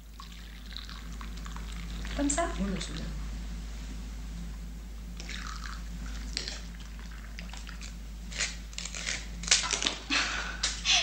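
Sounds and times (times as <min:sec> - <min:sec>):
knife scraping crisp rusk: 0:08.3 - 0:09.7.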